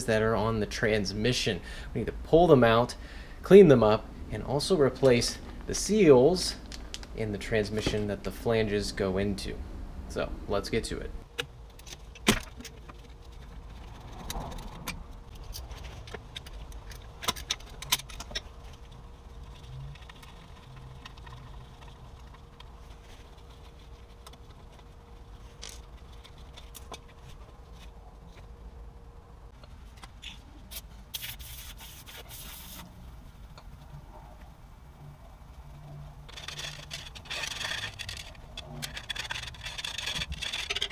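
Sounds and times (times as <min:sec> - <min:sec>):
metallic clicks and knocks: 0:11.3 - 0:18.9
metal scraping: 0:35.0 - 0:40.9.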